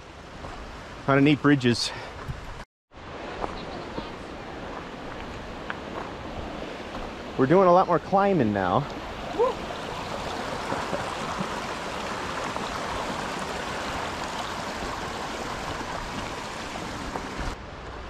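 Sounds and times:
creek flowing over stones: 3.0s - 17.6s.

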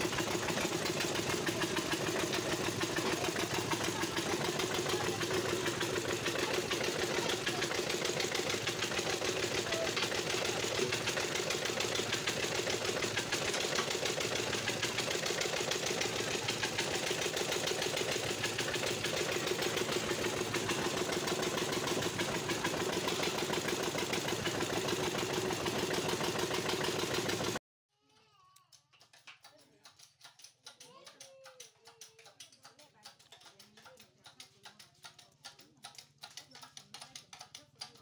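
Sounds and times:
flywheel engine running steadily: 0.0s - 27.6s.

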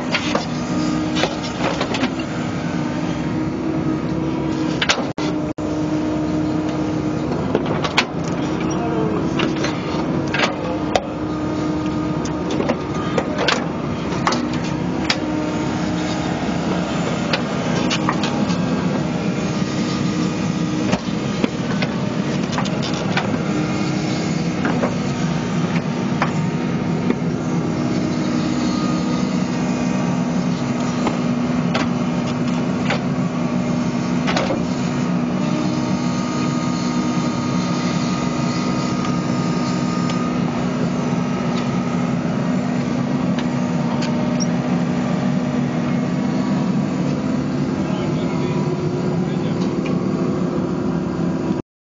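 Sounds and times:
excavator engine and hydraulics: 0.0s - 51.6s
excavator bucket knocking and clanking: 7.3s - 11.1s.

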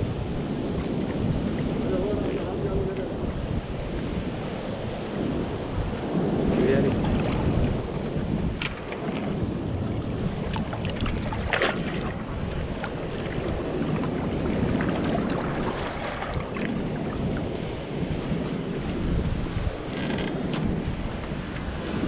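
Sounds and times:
wind buffeting microphone: 0.0s - 22.0s
water lapping against boat hull: 6.8s - 22.0s.

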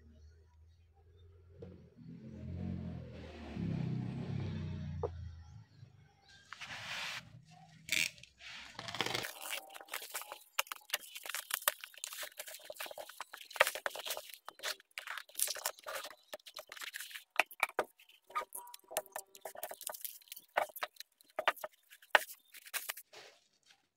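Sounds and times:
plastic wrap crinkling and tearing: 8.6s - 23.9s.

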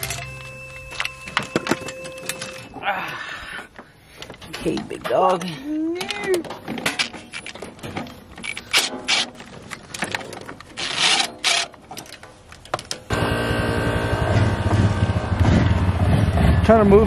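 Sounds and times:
tools knocking and clanking: 4.2s - 13.1s
steady engine hum: 13.1s - 17.0s.

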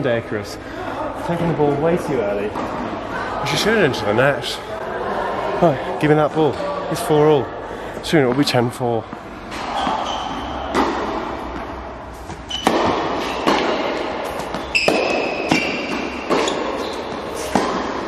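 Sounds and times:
tennis ball bouncing on court: 9.1s - 18.0s
tennis ball struck by racket: 9.8s - 18.0s.

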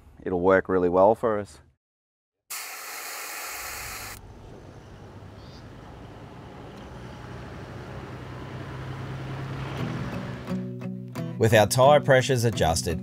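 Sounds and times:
loud hiss: 2.5s - 4.2s
road noise: 4.0s - 10.7s
vehicle engine hum: 4.2s - 10.5s.

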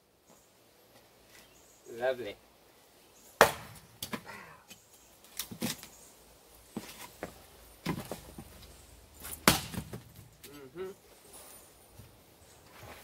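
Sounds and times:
sharp loud wood knock: 3.4s - 3.8s
axe splitting wood: 3.4s - 4.3s, 9.4s - 10.1s.

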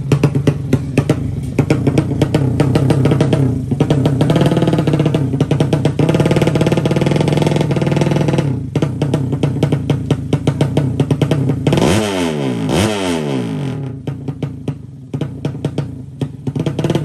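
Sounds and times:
background music with drum beat: 0.0s - 17.0s
motorbike engine revving: 0.0s - 17.0s.

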